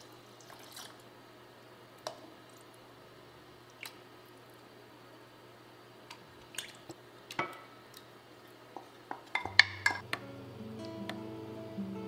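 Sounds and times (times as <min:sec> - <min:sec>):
faint steady hum: 0:00.0 - 0:12.0
wooden spoon tapping saucepan: 0:09.1 - 0:10.2.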